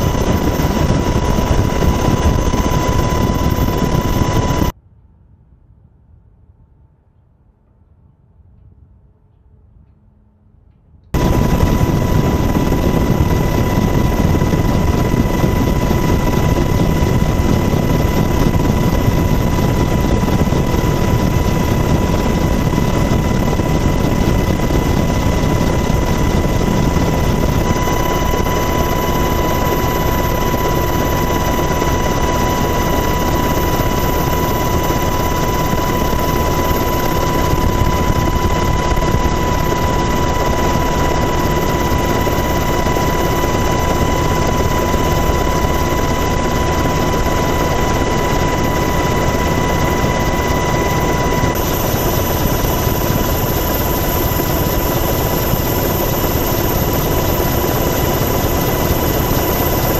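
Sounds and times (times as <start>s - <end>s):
helicopter rotor and turbine noise: 0.0s - 4.8s, 11.2s - 59.9s
high turbine whine: 0.0s - 4.8s, 11.2s - 59.9s.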